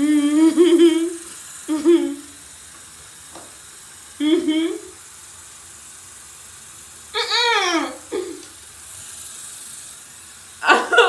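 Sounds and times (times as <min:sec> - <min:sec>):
woman's high-pitched squeal: 0:07.2 - 0:08.1.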